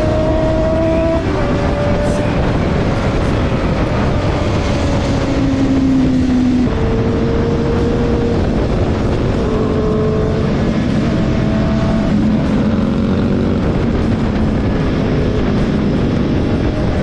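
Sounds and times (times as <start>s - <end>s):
motorcycle engine running: 0.0s - 17.0s
wind noise: 0.0s - 17.0s.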